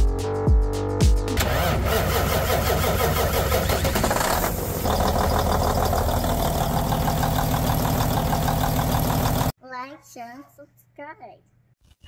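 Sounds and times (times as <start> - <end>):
engine running: 1.4 - 9.5.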